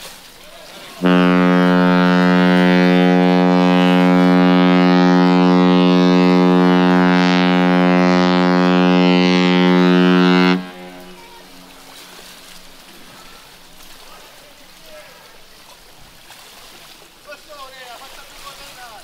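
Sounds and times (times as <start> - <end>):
ship horn blast: 0.9 - 13.7.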